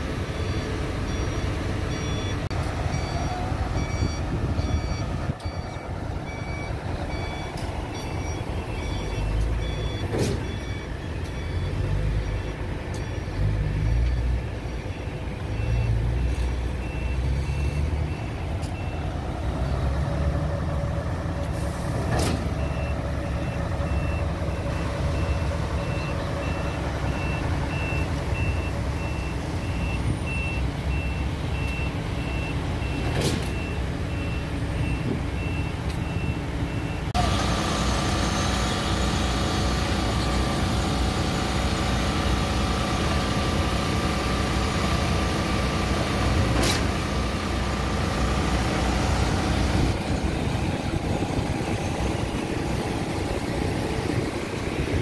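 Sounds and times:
heavy diesel engine running: 0.0s - 55.0s
reversing alarm beeping: 0.3s - 19.1s, 22.4s - 39.3s.

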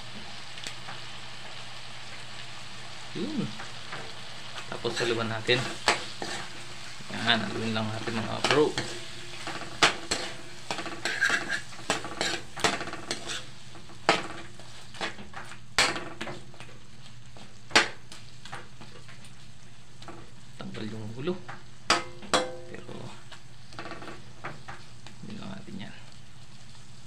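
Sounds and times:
soft sizzle: 0.0s - 27.0s
metal utensil clacking on wok: 7.5s - 13.5s, 15.8s - 16.4s, 21.9s - 22.8s.

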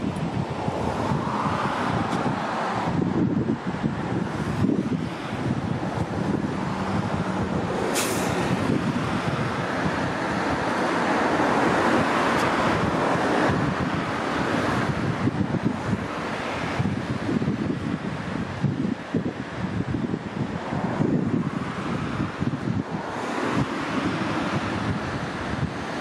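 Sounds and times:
highway traffic passing: 0.0s - 26.0s
wind buffeting microphone: 0.0s - 26.0s
brief sharp hiss: 7.9s - 8.5s.

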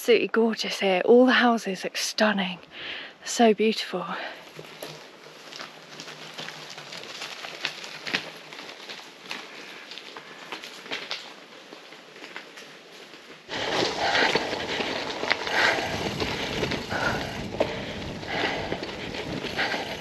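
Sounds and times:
bike tyres crunching on dirt: 4.2s - 20.0s
wind rumble: 13.5s - 20.0s.

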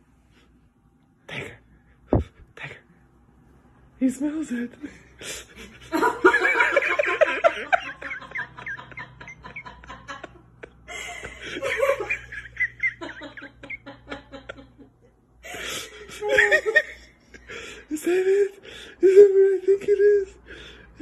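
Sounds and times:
person giggling: 5.6s - 20.4s.

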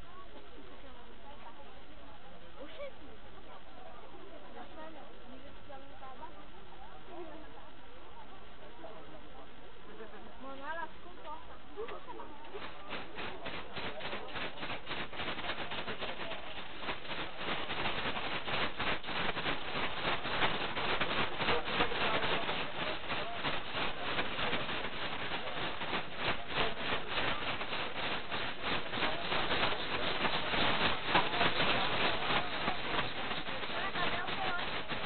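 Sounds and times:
close rattling and rubbing: 12.5s - 35.0s.

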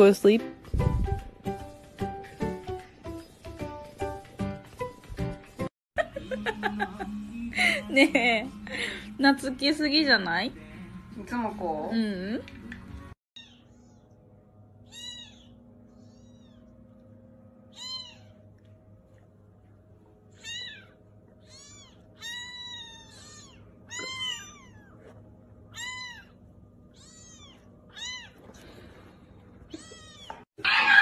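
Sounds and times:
kittens mewing: 14.8s - 16.8s, 17.7s - 18.5s, 20.3s - 28.6s, 29.6s - 31.0s.

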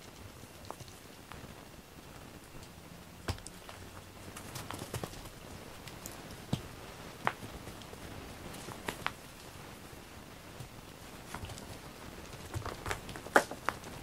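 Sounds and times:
cats clicking and tapping: 0.0s - 1.4s, 2.6s - 9.2s, 10.6s - 14.0s.

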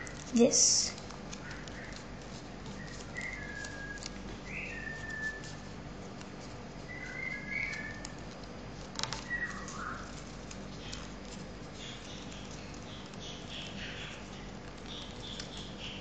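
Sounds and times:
paper being folded: 0.0s - 16.0s
bird chirping: 2.8s - 5.6s, 6.9s - 8.1s, 9.2s - 10.2s, 11.8s - 16.0s.

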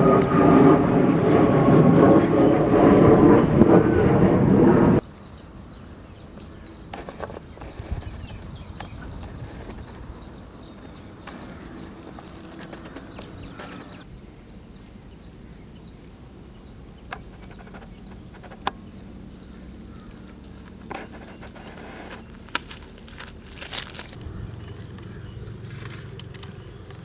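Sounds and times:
outdoor background noise: 0.0s - 27.0s
footsteps on dirt path: 6.4s - 14.0s, 18.0s - 26.8s.

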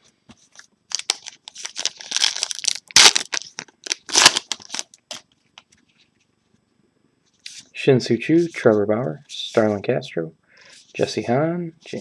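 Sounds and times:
card wrapper crinkling: 0.6s - 5.2s.

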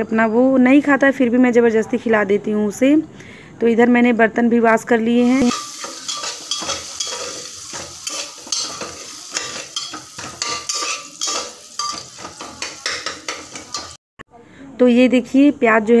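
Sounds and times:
onions sizzling lightly: 5.2s - 14.0s
spoon scraping cooking pan: 5.3s - 14.0s.

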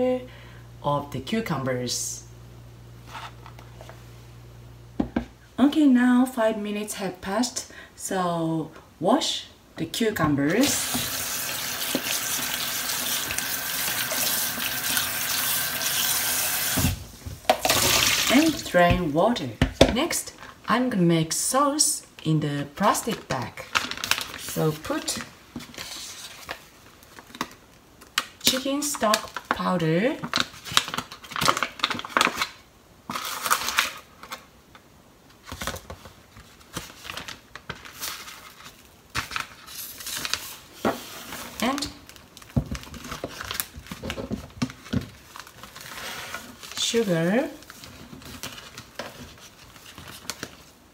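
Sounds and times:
foil packet crinkling: 23.0s - 28.4s, 30.2s - 34.5s, 35.4s - 40.8s, 41.4s - 50.8s.

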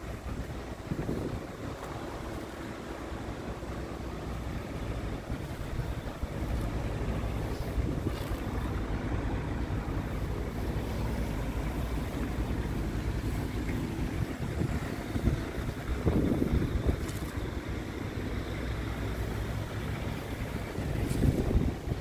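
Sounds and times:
diesel truck engine idling: 0.0s - 22.0s
wind buffeting microphone: 0.0s - 22.0s.

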